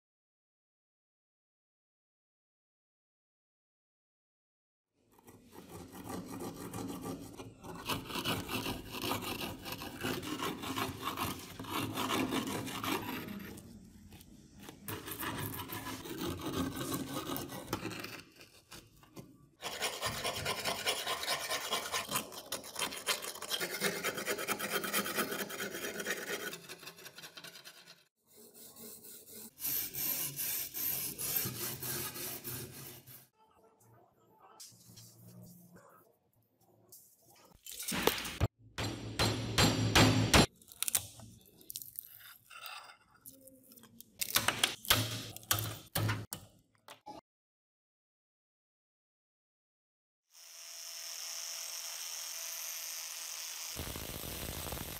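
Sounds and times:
metal tool scraping blade: 5.3 - 13.7, 19.6 - 33.3.

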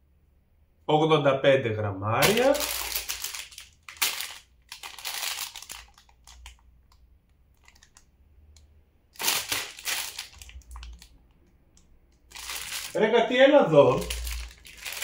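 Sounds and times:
plastic pouches crinkling: 2.2 - 8.1, 9.1 - 11.4, 12.1 - 13.2, 13.8 - 15.0.

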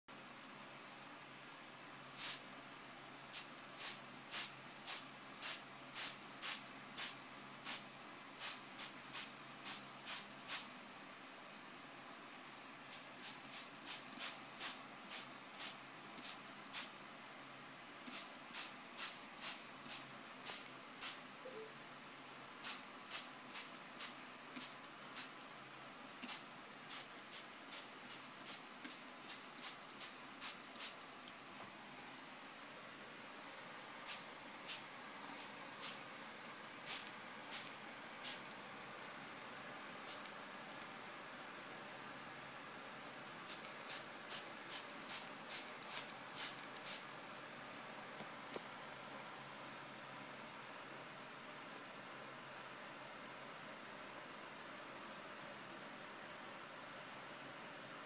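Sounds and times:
spray bottle misting: 2.2 - 2.4, 3.3 - 10.7, 12.9 - 17.0, 18.1 - 21.2, 22.6 - 25.4, 26.2 - 31.0, 34.0 - 36.0, 36.8 - 38.4, 40.0 - 40.4, 43.3 - 47.0.

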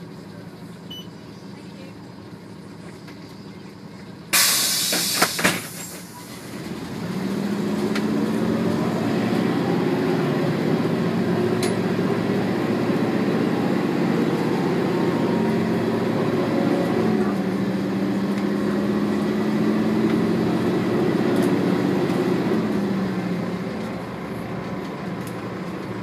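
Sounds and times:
bus engine pulling away: 0.0 - 26.0
compressed air hiss: 4.4 - 6.0.

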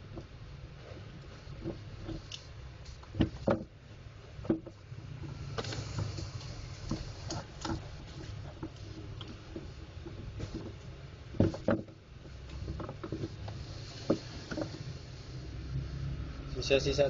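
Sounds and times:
steady low hum: 0.0 - 17.0
plastic clicks and knocks: 4.4 - 4.8
rustling scrape: 4.4 - 16.3.

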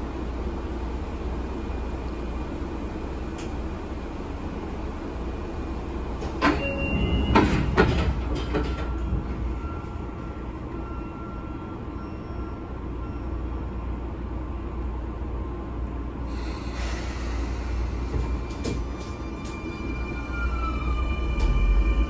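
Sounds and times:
train car low hum: 0.0 - 22.0
train doors thumping shut: 6.2 - 9.6, 18.0 - 19.7
short door chime: 6.4 - 7.6
hiss of air: 16.3 - 18.5.

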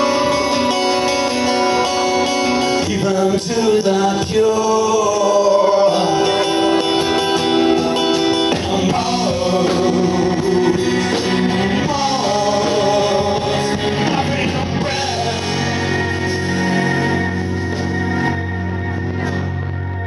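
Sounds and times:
acoustic and electric guitars: 0.0 - 20.0
bass: 0.0 - 20.0
keyboard: 0.0 - 20.0
man singing lead: 2.6 - 17.3.

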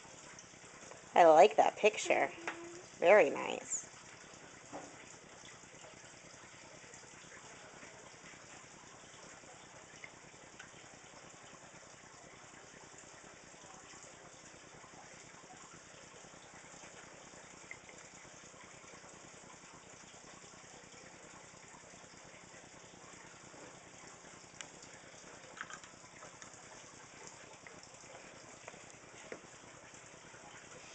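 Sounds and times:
soft ticks: 24.6 - 24.8, 28.6 - 29.5.

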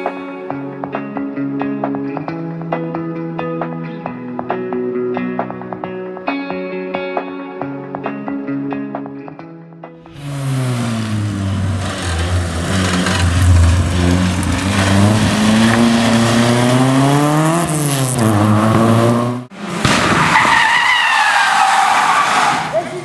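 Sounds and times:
rally car engine revving: 10.1 - 23.0.

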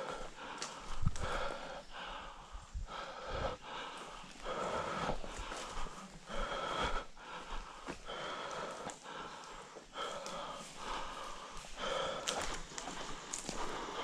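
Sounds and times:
person breathing hard: 0.0 - 14.0.

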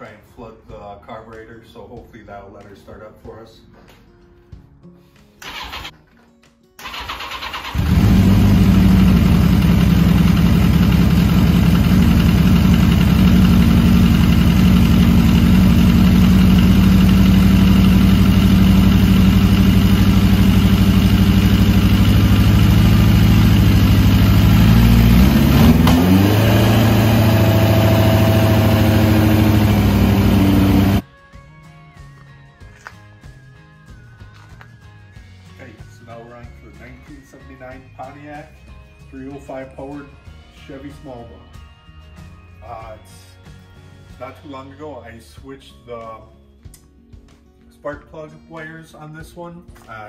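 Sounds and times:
motorcycle engine idling: 6.9 - 25.8, 27.2 - 31.0.

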